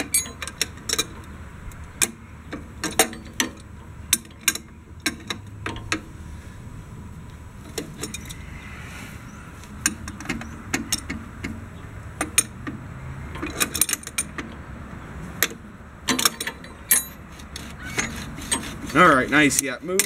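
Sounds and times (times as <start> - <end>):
metal tools clinking: 0.0 - 1.2, 16.1 - 20.0.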